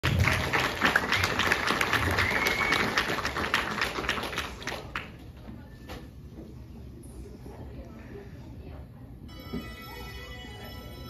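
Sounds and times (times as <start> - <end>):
audience applauding: 0.0 - 5.1.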